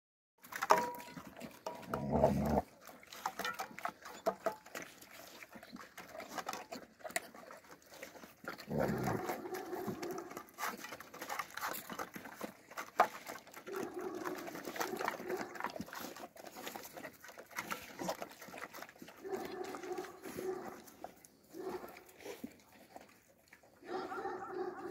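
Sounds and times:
clicks against metal bowls: 0:00.4 - 0:05.1
puppies chewing and lapping: 0:00.4 - 0:24.9.

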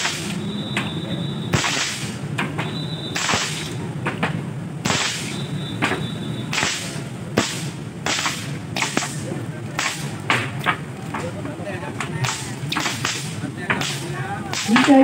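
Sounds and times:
whips cracking: 0:00.0 - 0:00.4, 0:01.5 - 0:02.2, 0:03.1 - 0:03.8, 0:04.8 - 0:05.4, 0:06.5 - 0:10.4, 0:12.2 - 0:15.0.

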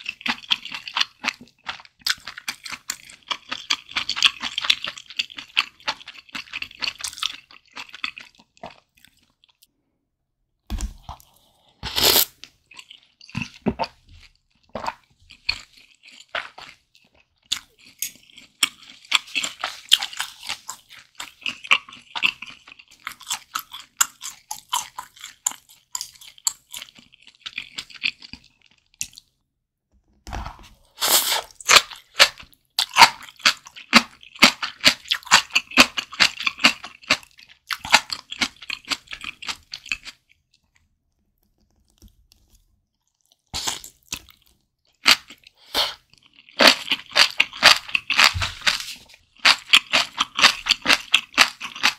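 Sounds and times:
wet crunchy chewing: 0:00.0 - 0:09.8, 0:11.1 - 0:29.3, 0:30.4 - 0:40.9, 0:41.5 - 0:51.9.

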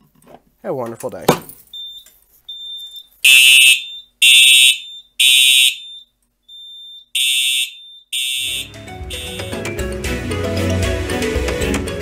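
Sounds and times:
fire alarm horn blasts: 0:02.5 - 0:09.6
faint high steady tone: 0:04.7 - 0:09.6.

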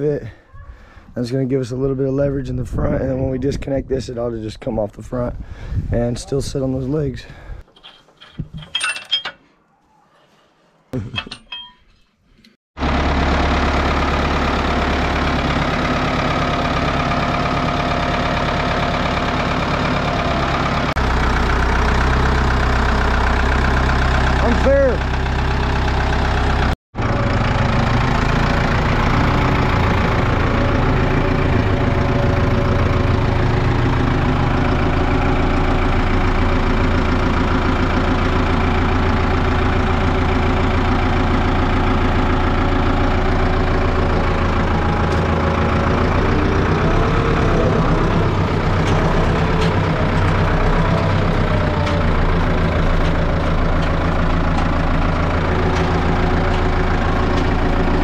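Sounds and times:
tractor engine running: 0:12.8 - 0:58.0.

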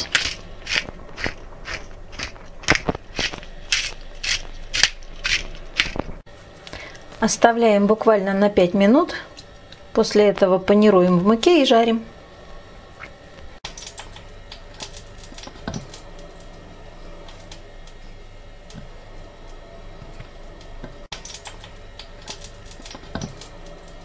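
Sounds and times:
fish fillets patting and squishing: 0:00.0 - 0:06.2.

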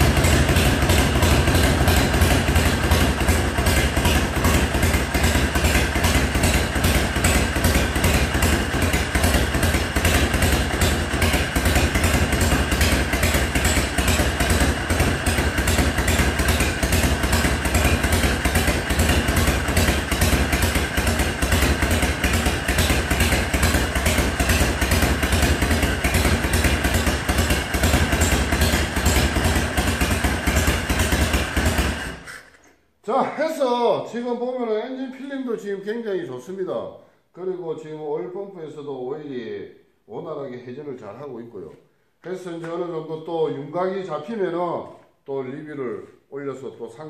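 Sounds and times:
motorcycle engine idling: 0:00.0 - 0:32.5.

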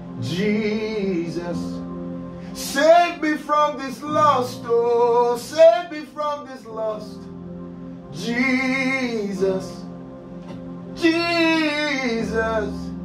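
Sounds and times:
sustained keyboard chords: 0:00.0 - 0:13.0
man singing into a microphone: 0:00.2 - 0:01.8, 0:02.6 - 0:07.2, 0:08.2 - 0:09.8, 0:11.0 - 0:13.0.

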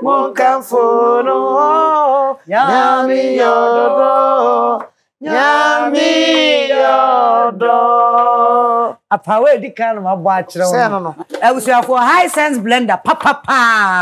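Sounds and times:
women singing unaccompanied: 0:00.0 - 0:09.0.

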